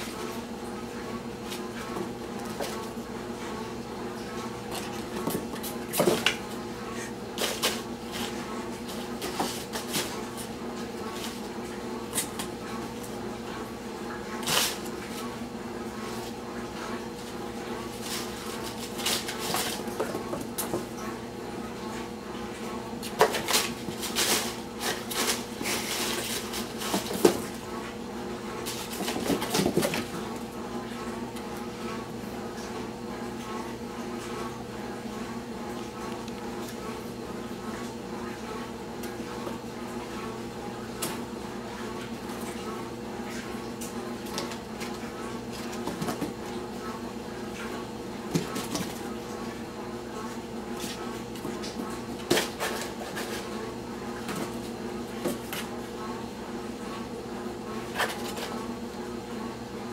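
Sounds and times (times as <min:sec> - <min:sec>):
crumpled paper rustling: 0:23.1 - 0:27.5.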